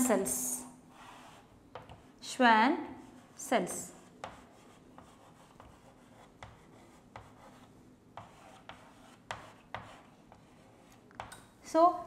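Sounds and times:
chalk writing on a chalkboard: 0.9s - 2.2s, 2.9s - 11.3s.

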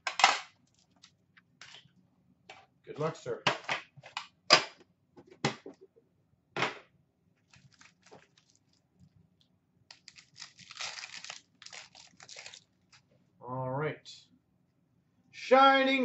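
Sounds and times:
wrapper tearing: 7.4s - 8.8s, 9.9s - 13.0s
foil packs slapping down: 10.0s - 12.6s.

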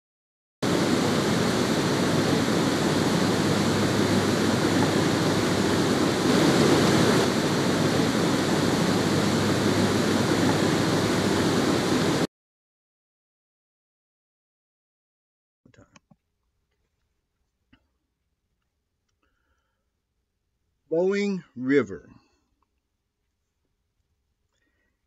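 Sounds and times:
water rushing over a dam: 0.6s - 12.3s.

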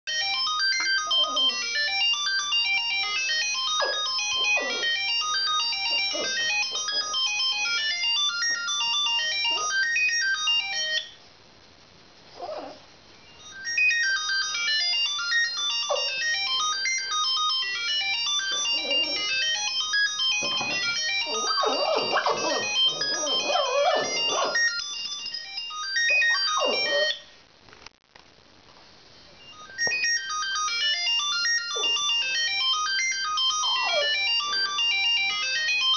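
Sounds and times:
phone ringtone melody: 0.1s - 11.2s, 13.3s - 27.3s, 29.4s - 35.9s
dog howling: 18.6s - 19.5s, 21.0s - 24.6s, 26.1s - 27.2s, 33.6s - 34.4s.

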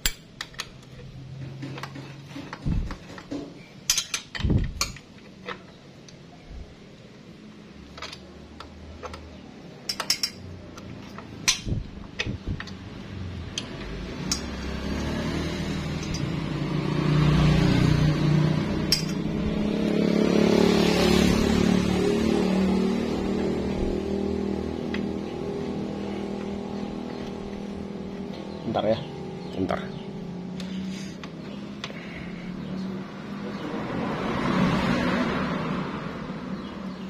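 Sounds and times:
wrench clinking on metal parts: 0.0s - 5.7s, 7.9s - 12.8s, 13.5s - 14.6s, 16.0s - 16.4s, 18.9s - 19.2s.

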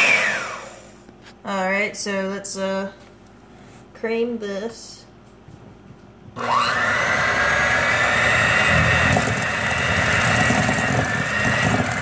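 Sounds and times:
electric hand mixer whining: 0.0s - 1.0s, 6.4s - 12.0s.

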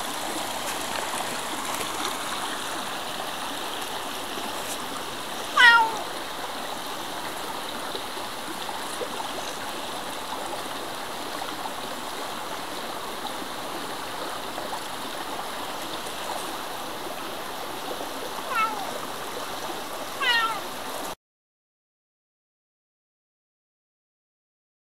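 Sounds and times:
stream rushing: 0.0s - 21.2s
cat meowing: 5.5s - 6.1s, 18.5s - 19.0s, 20.2s - 20.7s.

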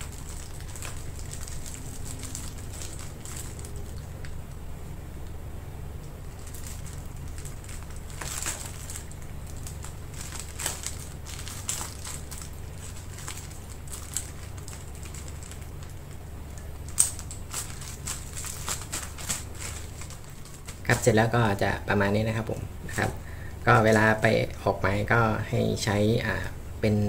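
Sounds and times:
plastic bag crinkling: 0.0s - 4.4s, 6.2s - 21.9s
steady low hum: 0.0s - 27.0s.

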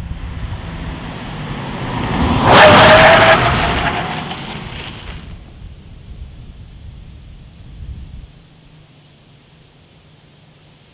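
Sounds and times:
steady tyre tone on tarmac: 0.0s - 10.9s
tyre noise rushing: 0.2s - 5.5s.

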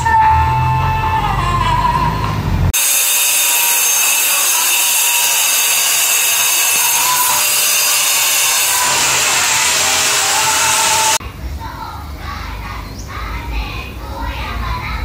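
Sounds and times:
power tool hiss and whine: 2.8s - 11.2s.

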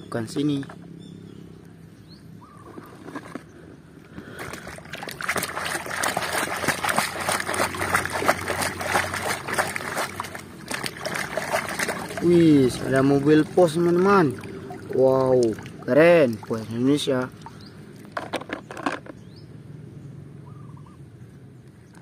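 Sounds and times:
toy car splashing in water: 4.4s - 12.3s.

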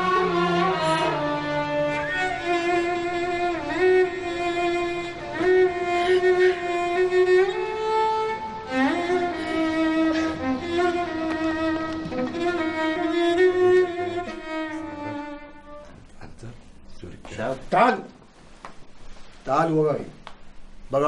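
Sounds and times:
slow violin melody: 0.0s - 16.2s.

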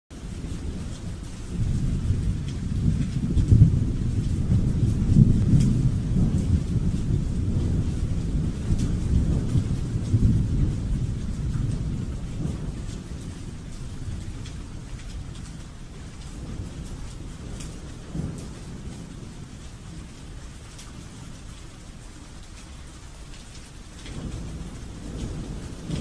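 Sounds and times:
raindrop ticks: 0.1s - 26.0s
thunder rumbling: 0.2s - 21.9s, 23.9s - 26.0s
rain hissing: 0.2s - 26.0s.

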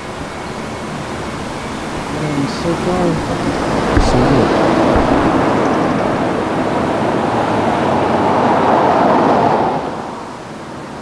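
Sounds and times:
vehicles driving past: 2.1s - 10.3s.

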